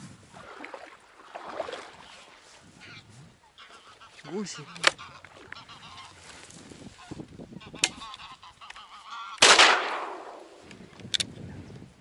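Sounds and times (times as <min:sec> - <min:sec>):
geese honking: 0:02.8 - 0:06.4, 0:07.0 - 0:09.5
shotgun shot: 0:09.4 - 0:10.5.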